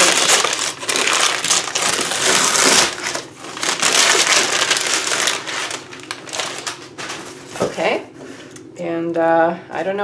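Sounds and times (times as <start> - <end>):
paper tearing and crumpling: 0.0 - 7.5.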